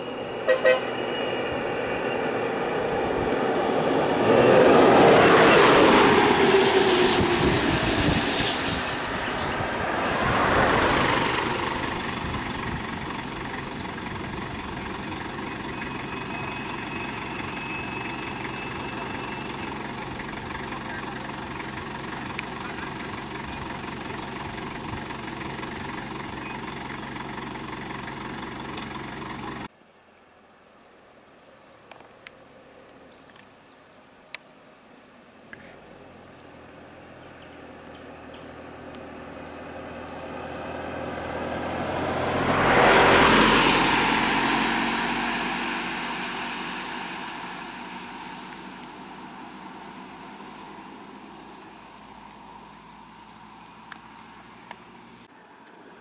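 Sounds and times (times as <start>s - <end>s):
vehicle passing: 0.0s - 29.7s, 37.1s - 55.2s
insect drone: 0.0s - 56.0s
vehicle engine idling: 5.4s - 29.7s, 35.5s - 55.5s.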